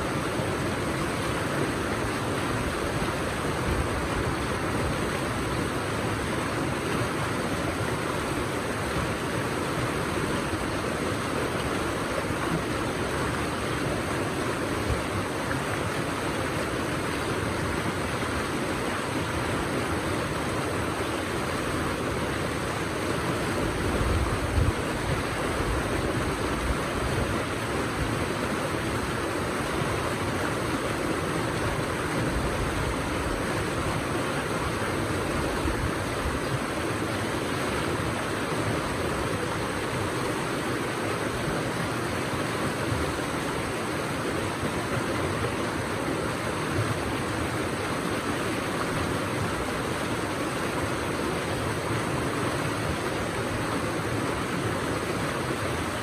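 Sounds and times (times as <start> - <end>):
river water rushing over boulders: 0.0 - 56.0.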